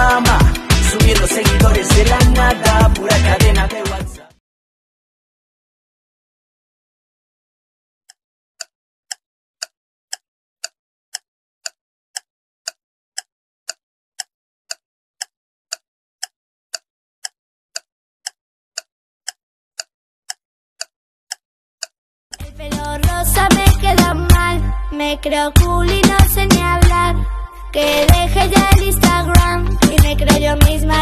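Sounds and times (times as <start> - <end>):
clock-like ticking: 8.1 - 24.4, 25.6 - 27.0, 27.8 - 31.0.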